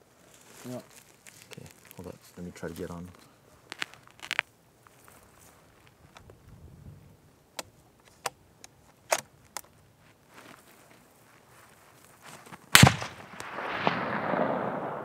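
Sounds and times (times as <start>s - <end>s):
loud rifle shot: 12.7s - 15.0s.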